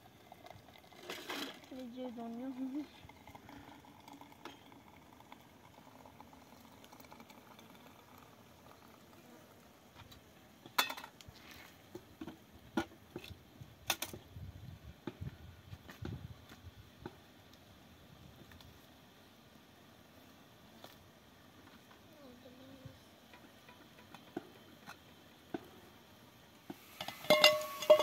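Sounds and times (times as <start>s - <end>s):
faint background noise: 0.0s - 28.0s
metal pots and utensils clinking: 0.8s - 1.7s, 10.7s - 11.1s, 26.9s - 28.0s.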